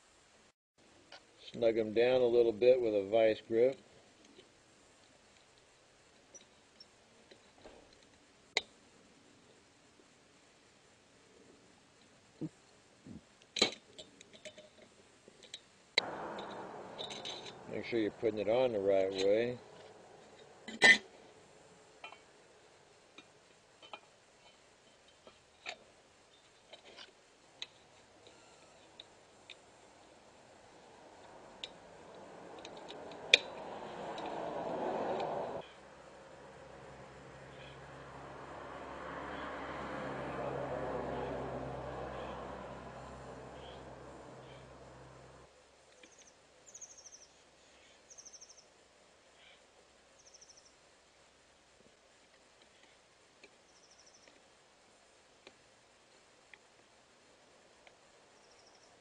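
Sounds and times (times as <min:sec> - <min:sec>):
light metal clicks and taps: 0:31.6 - 0:34.4.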